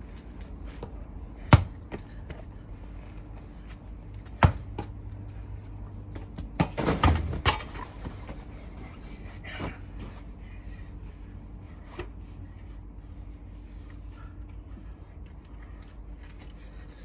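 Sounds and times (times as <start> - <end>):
football being kicked: 1.4 - 2.4, 4.2 - 5.0.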